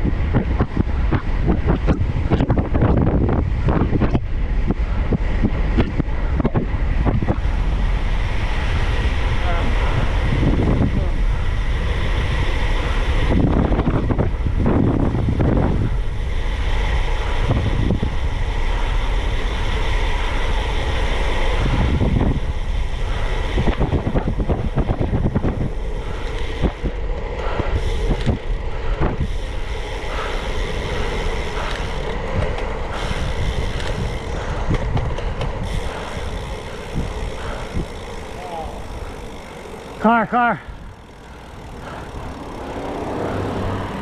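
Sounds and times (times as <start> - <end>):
bicycle tyre and road noise: 0.0 - 44.0
wind buffeting microphone: 0.0 - 44.0.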